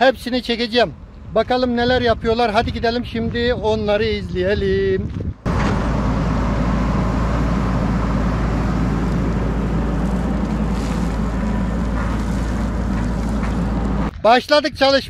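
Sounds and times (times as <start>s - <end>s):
wind noise on microphone: 0.9s - 15.0s
engine rumble: 5.1s - 14.2s.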